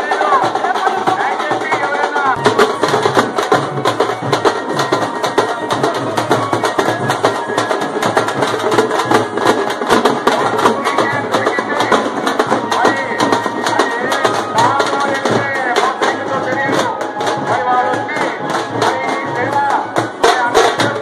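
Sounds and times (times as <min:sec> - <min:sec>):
drums beaten fast: 0:00.0 - 0:21.0.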